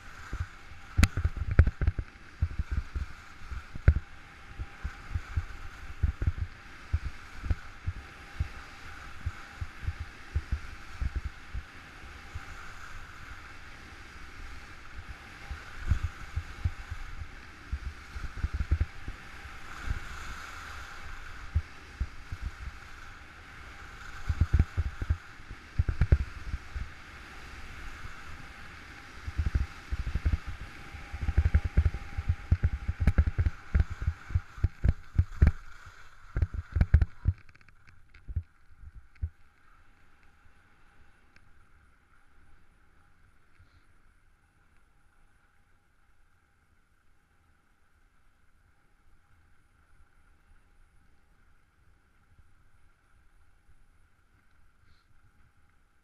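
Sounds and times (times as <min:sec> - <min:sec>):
skis hissing on packed snow: 0:00.0 - 0:01.0, 0:02.2 - 0:32.4
wind buffeting microphone: 0:00.0 - 0:11.7, 0:15.0 - 0:20.4, 0:23.8 - 0:35.7, 0:36.3 - 0:37.5.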